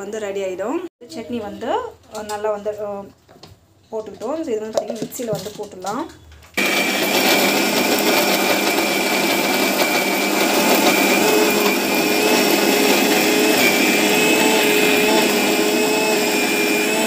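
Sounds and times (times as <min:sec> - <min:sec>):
mixer grinder motor whining: 0:06.6 - 0:17.0.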